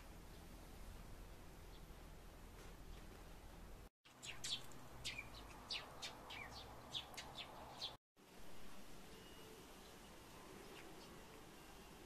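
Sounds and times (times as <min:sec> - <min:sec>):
birds chirping: 0:04.1 - 0:08.0.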